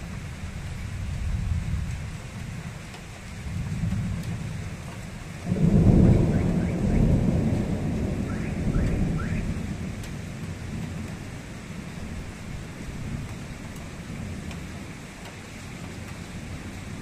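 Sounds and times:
rain falling: 0.0s - 17.0s
thunder rumbling: 3.4s - 15.0s.

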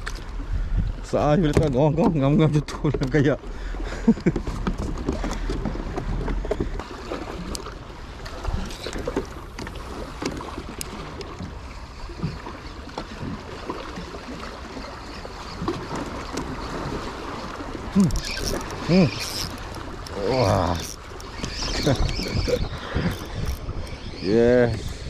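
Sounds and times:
wind rumble on microphone: 0.0s - 2.7s, 18.0s - 25.0s
water lapping against kayak: 0.0s - 25.0s.

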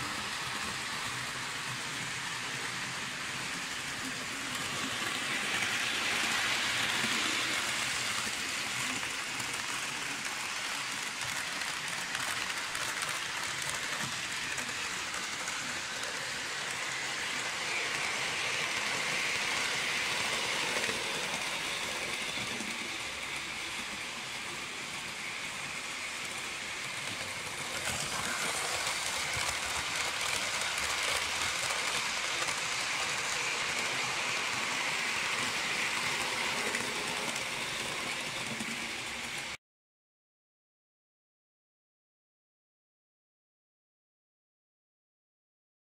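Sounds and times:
model train rattling on track: 0.0s - 39.6s.

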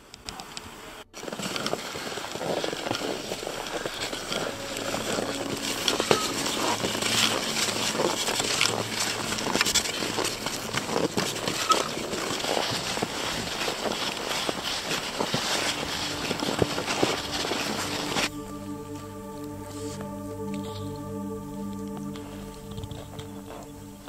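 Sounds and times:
ski poles clicking: 0.2s - 18.2s
skis scraping over snow: 0.7s - 18.3s.

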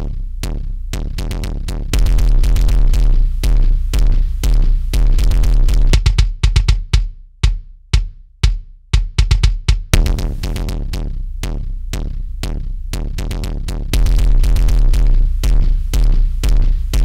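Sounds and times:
kick drum hits: 5.8s - 10.6s.

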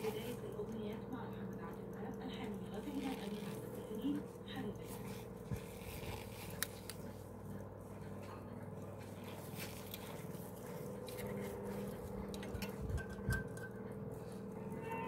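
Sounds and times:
pocket watches clicking and rubbing: 0.0s - 7.7s
steady low hum: 0.0s - 15.0s.

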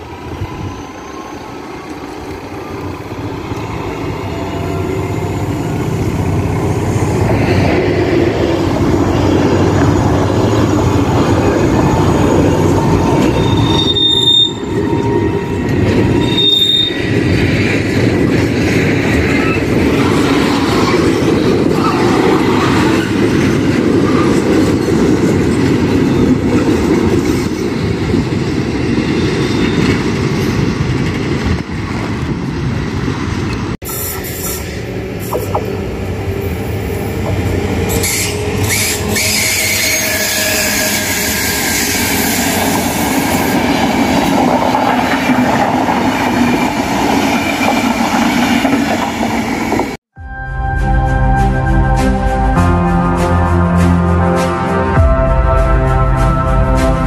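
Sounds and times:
wheels rumbling on rails: 0.0s - 50.0s
high wheel squeals: 0.1s - 3.4s, 12.4s - 17.2s, 37.9s - 42.7s.

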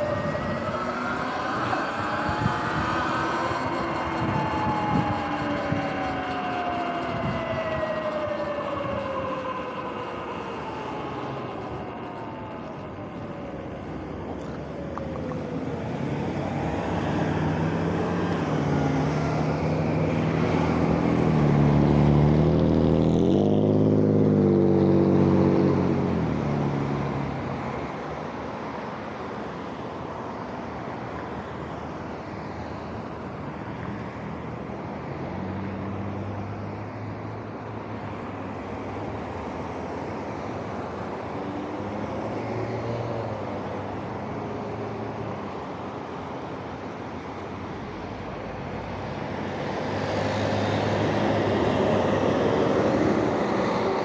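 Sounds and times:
steady traffic noise: 0.0s - 54.0s
vehicle engine accelerating: 13.9s - 27.4s.

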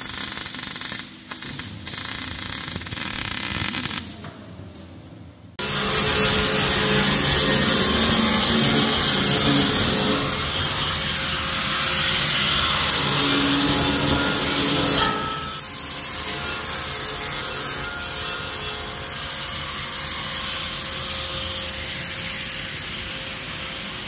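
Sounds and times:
angle grinder grinding steel: 5.6s - 16.6s.

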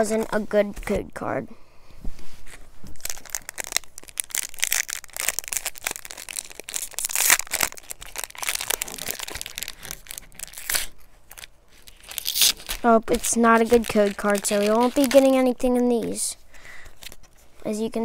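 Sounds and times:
foil wrapper crinkling: 2.8s - 15.7s.

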